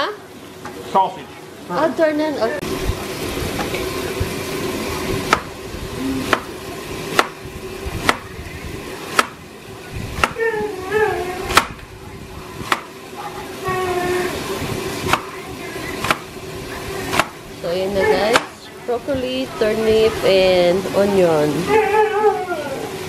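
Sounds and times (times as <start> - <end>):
knife chopping on cutting board: 12.7 - 12.9.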